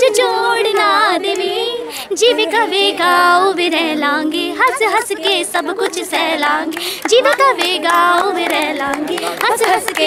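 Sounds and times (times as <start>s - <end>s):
girls singing into microphone: 0.0s - 10.0s.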